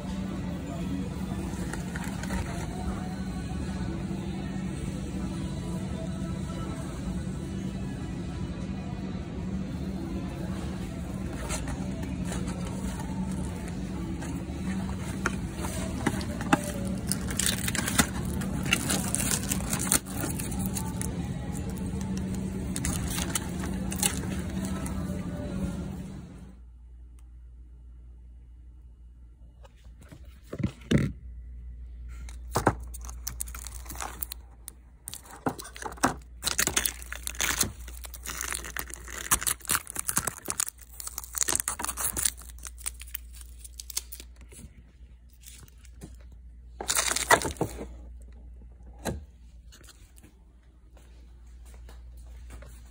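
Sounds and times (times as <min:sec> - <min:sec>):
plastic sleeves crinkling: 0:11.2 - 0:25.2, 0:32.3 - 0:48.2.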